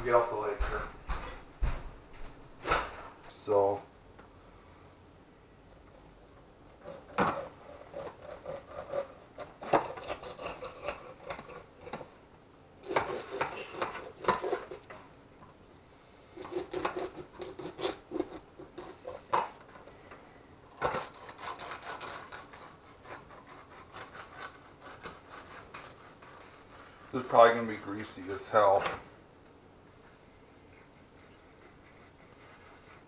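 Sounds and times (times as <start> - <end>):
knife cutting fish: 6.9 - 12.0, 16.4 - 19.2.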